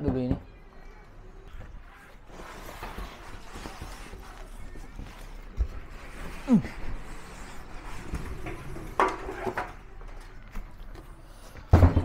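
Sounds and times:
cardboard scraping and rustling: 0:02.0 - 0:05.5.

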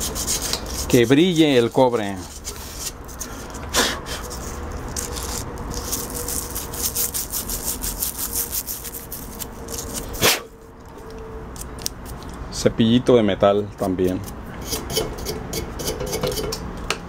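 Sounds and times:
sandpaper rubbing copper tube: 0:00.0 - 0:10.6, 0:14.0 - 0:16.6.

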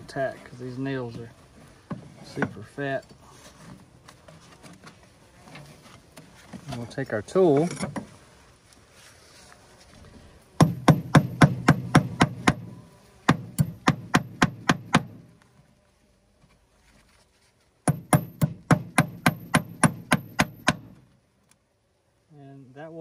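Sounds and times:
metal tool hammering nail into wood: 0:10.6 - 0:12.7, 0:13.3 - 0:15.2, 0:17.8 - 0:21.0.

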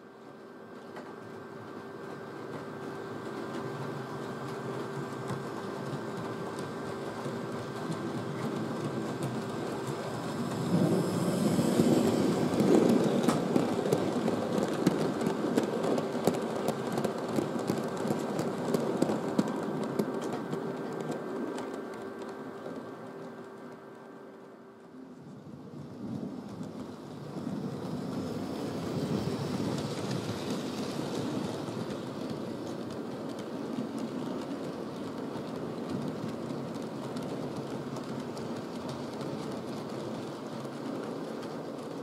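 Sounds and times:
model train motor hum: 0:00.0 - 0:42.0
wheels clicking over rail joints: 0:00.0 - 0:42.0.

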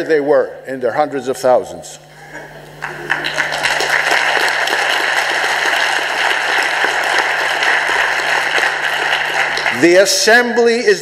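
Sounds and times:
audience applauding: 0:02.8 - 0:10.3.

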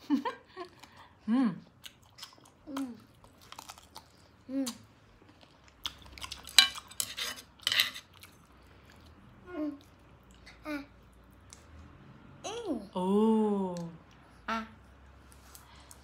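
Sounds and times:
chewing: 0:00.6 - 0:12.0.

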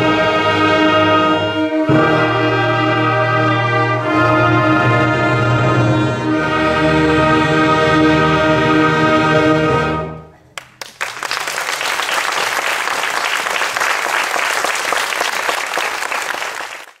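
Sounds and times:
audience applause: 0:10.6 - 0:17.0.

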